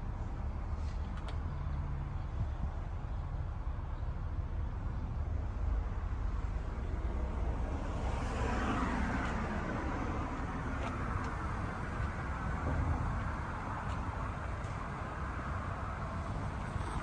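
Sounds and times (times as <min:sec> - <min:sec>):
low traffic rumble: 0:00.0 - 0:17.0
car passing by: 0:07.4 - 0:14.8.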